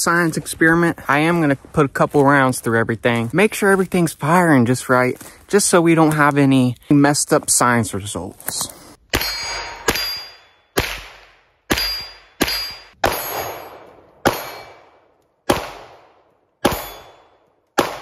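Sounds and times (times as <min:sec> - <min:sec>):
single gunshots: 0:10.8 - 0:18.0.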